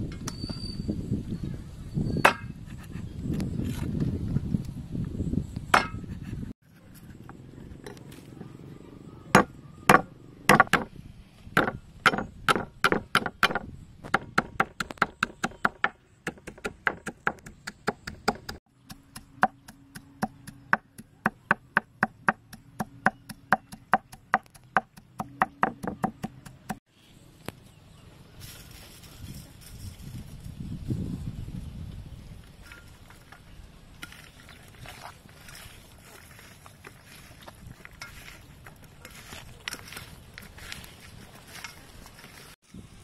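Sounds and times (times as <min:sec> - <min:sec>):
cleaver chopping on wooden block: 0:05.7 - 0:06.1, 0:09.4 - 0:10.9, 0:11.6 - 0:26.8.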